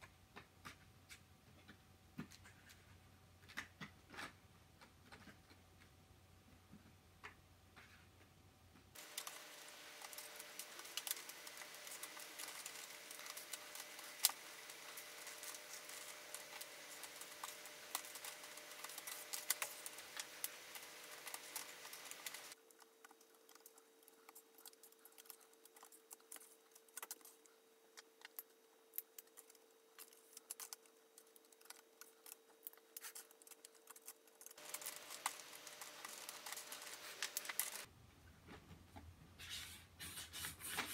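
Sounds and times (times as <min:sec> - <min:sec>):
plastic parts clicking and rattling: 0:09.0 - 0:37.9.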